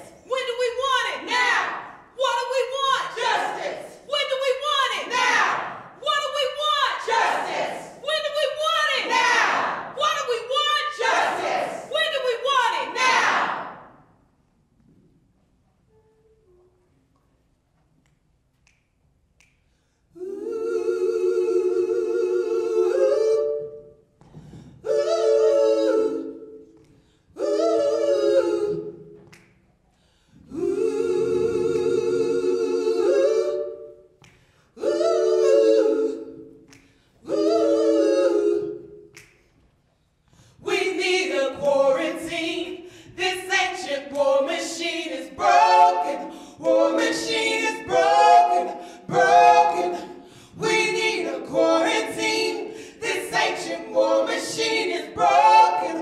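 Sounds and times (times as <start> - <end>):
women singing a cappella harmony: 0.0 - 14.0, 20.2 - 29.3, 30.4 - 39.1, 40.4 - 56.0.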